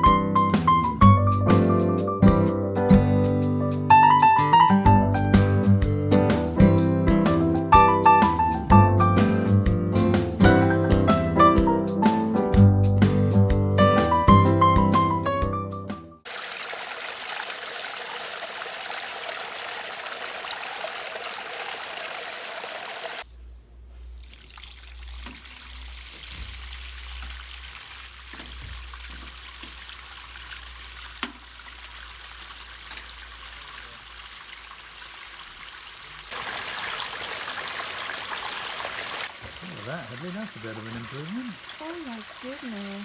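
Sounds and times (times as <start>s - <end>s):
waterfall splashing into pond: 16.2s - 23.3s, 24.2s - 43.0s.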